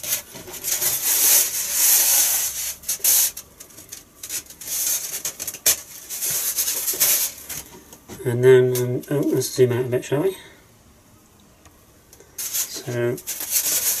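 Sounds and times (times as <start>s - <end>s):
foam rubbing scratchy hiss: 0.0s - 3.5s, 4.2s - 7.6s, 12.4s - 14.0s.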